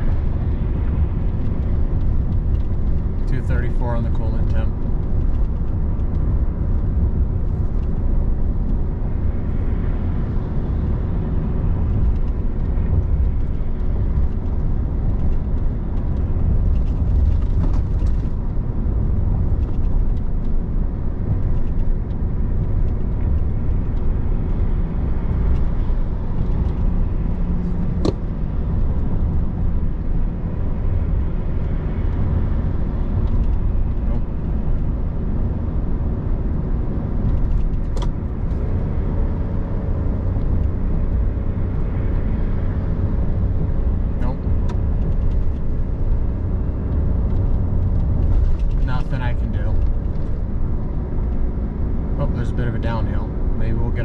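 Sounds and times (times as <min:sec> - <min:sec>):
road and tyre rumble: 0:00.0 - 0:54.0.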